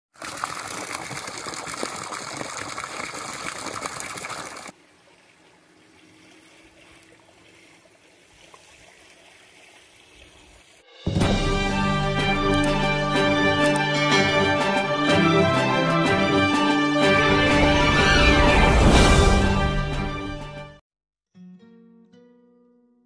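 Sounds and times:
water gushing into paddy: 0:00.1 - 0:10.9.

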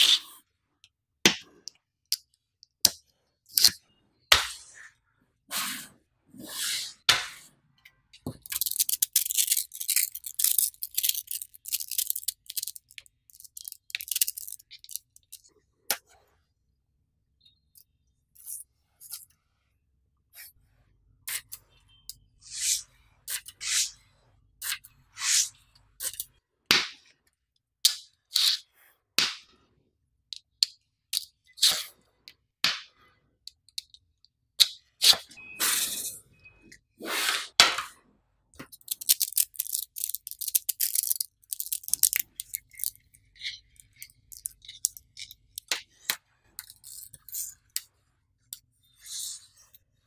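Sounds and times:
balls scraping on tabletop: 0:04.3 - 0:07.6, 0:22.4 - 0:26.0, 0:37.0 - 0:38.0, 0:48.8 - 0:49.9
magnetic balls clicking together: 0:08.2 - 0:15.5, 0:38.7 - 0:47.8.

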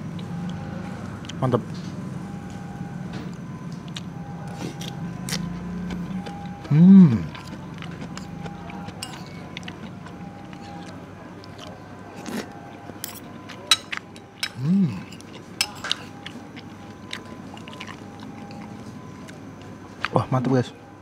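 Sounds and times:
chewing: 0:00.0 - 0:01.4, 0:03.7 - 0:20.2
person humming: 0:06.7 - 0:07.3, 0:14.5 - 0:15.1
cutlery clinking on a plate: 0:09.0 - 0:09.4, 0:13.0 - 0:16.1.

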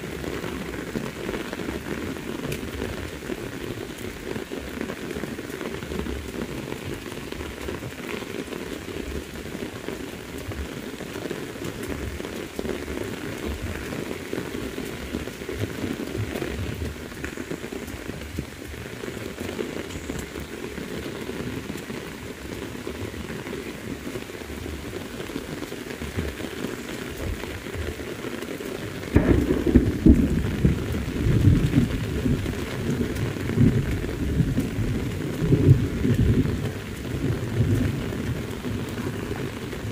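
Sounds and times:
heavy rain: 0:00.0 - 0:39.9
thunder rumbling: 0:29.1 - 0:39.9.

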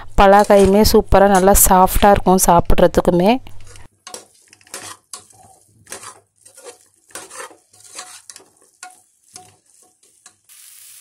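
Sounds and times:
metal spoon scraping pot: 0:00.3 - 0:01.7, 0:03.7 - 0:10.4.

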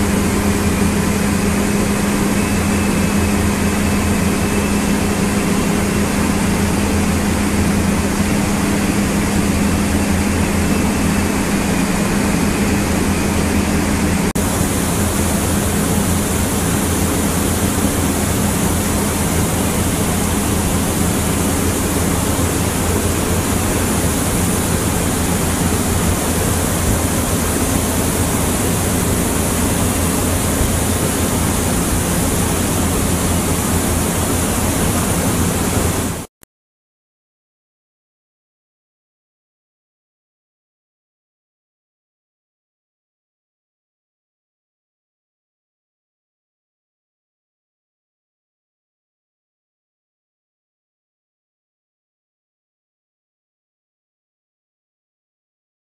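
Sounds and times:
machinery low hum: 0:00.0 - 0:36.3
bright rushing hiss: 0:14.4 - 0:36.3.

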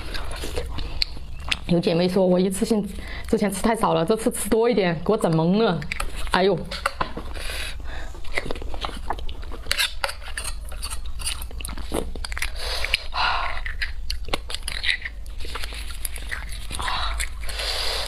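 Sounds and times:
wet mouth clicks and chewing: 0:00.0 - 0:02.0, 0:05.2 - 0:07.5, 0:08.2 - 0:18.0
metal spoon scraping bone: 0:08.4 - 0:18.0.

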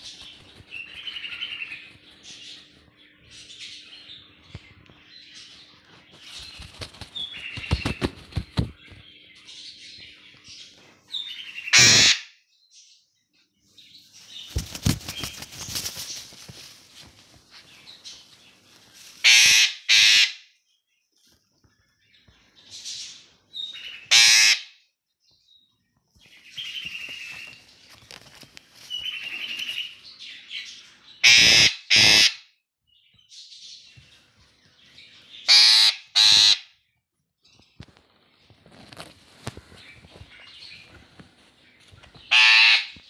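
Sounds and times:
parrot squawking: 0:11.6 - 0:12.3, 0:19.2 - 0:20.4, 0:24.1 - 0:24.7, 0:31.2 - 0:32.4, 0:35.5 - 0:36.7, 0:42.3 - 0:43.0.

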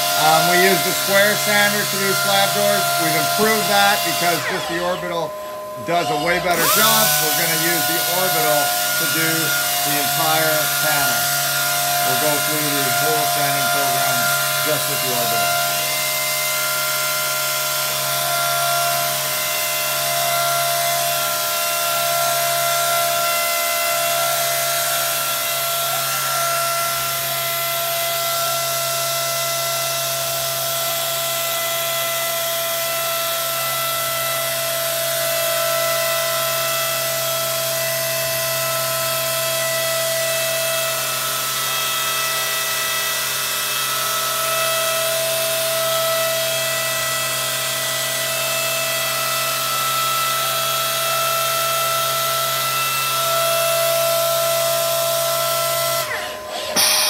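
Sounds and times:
orbital sander hiss and whine: 0:00.0 - 0:18.2, 0:55.6 - 0:57.0.

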